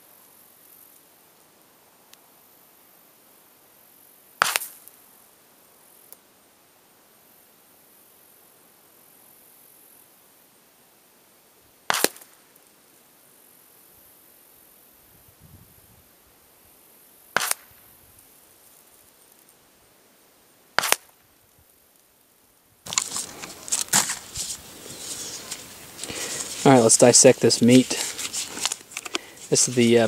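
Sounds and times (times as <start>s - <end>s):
rifle shots with echo: 17.4s - 17.7s, 20.8s - 21.1s.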